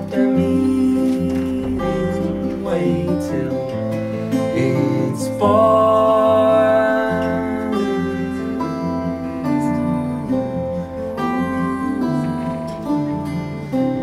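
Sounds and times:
acoustic guitars playing: 0:00.0 - 0:14.0
man singing sustained note: 0:04.5 - 0:13.0.

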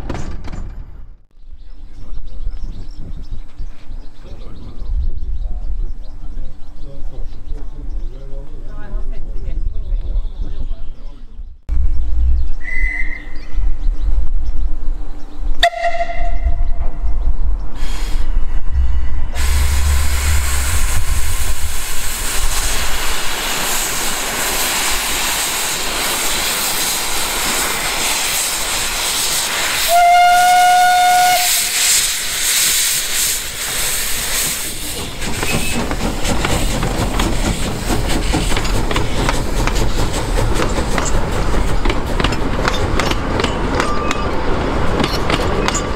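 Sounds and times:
steam locomotive whistle: 0:15.6 - 0:16.9, 0:19.3 - 0:21.8, 0:29.7 - 0:32.1.

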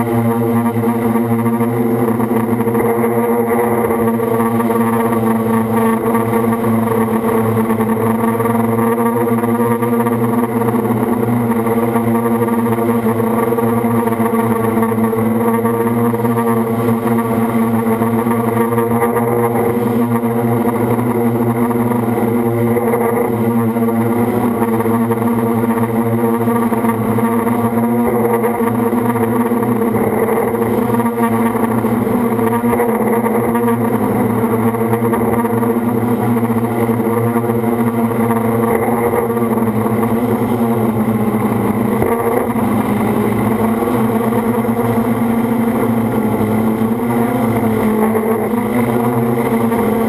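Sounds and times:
drone motors and propellers buzzing: 0:00.0 - 0:50.0.

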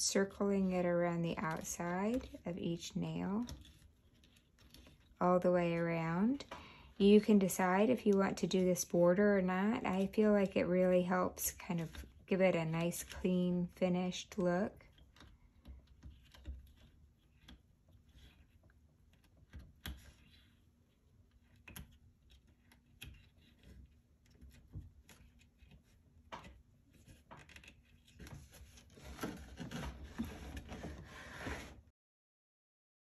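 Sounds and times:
wooden panel scraping on table: 0:29.0 - 0:31.9.

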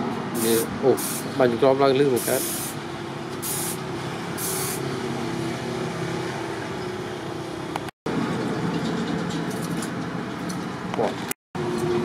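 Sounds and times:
aerosol spray can hissing: 0:00.4 - 0:01.3, 0:02.2 - 0:02.8, 0:03.4 - 0:03.8, 0:04.4 - 0:04.8.

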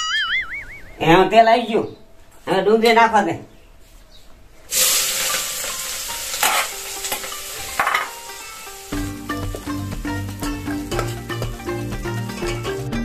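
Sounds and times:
onion sizzling in hot oil: 0:04.7 - 0:12.6
metal spoon stirring in pot: 0:05.3 - 0:12.8
background music: 0:05.8 - 0:13.0.

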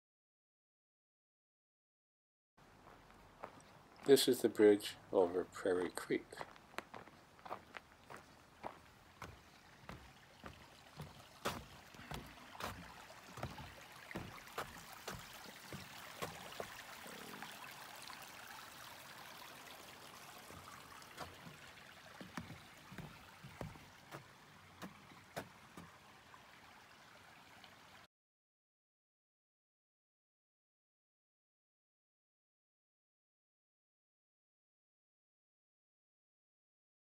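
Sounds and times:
flowing creek water: 0:02.6 - 0:28.1
footsteps walking: 0:02.8 - 0:04.3, 0:06.3 - 0:17.3, 0:20.4 - 0:25.9.

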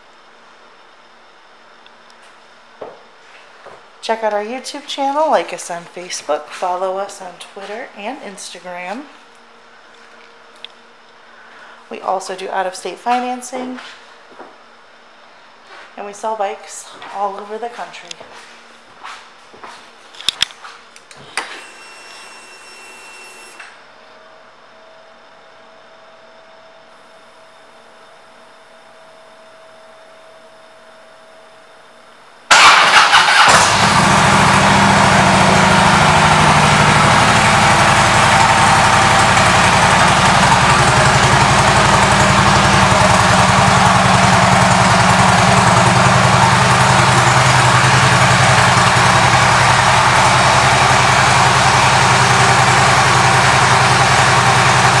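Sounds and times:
faint hum: 0:00.0 - 0:32.5
motorcycle starter cranking: 0:32.5 - 0:35.2
motorcycle engine idling loudly: 0:32.5 - 0:55.0.

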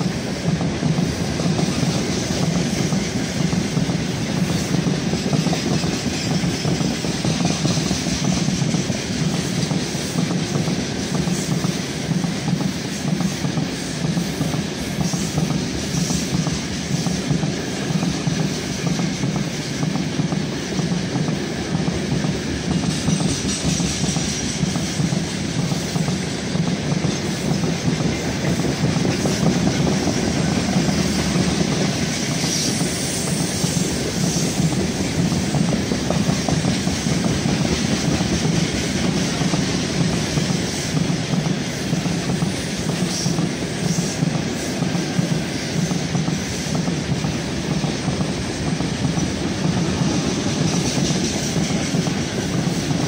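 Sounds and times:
freight wagon wheels on track: 0:00.0 - 0:53.0.

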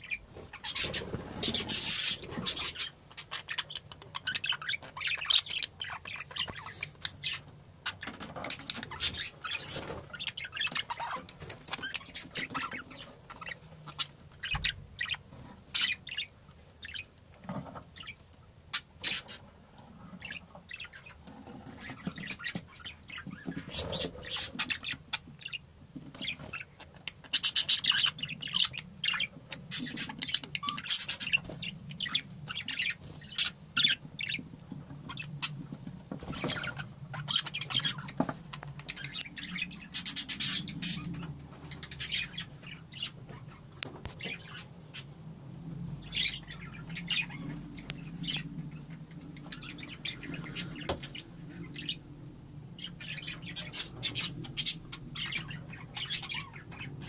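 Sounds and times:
budgerigars chirping: 0:00.0 - 0:45.2, 0:46.0 - 0:57.0.

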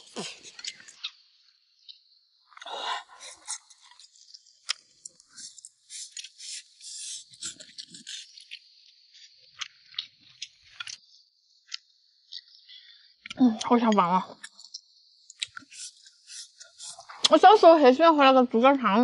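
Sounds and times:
person chewing: 0:00.0 - 0:01.1, 0:02.5 - 0:08.6, 0:09.5 - 0:11.0, 0:14.4 - 0:17.4.

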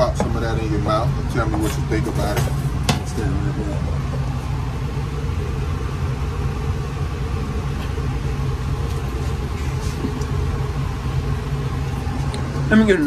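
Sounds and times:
loud low mechanical rumble: 0:00.0 - 0:13.0.

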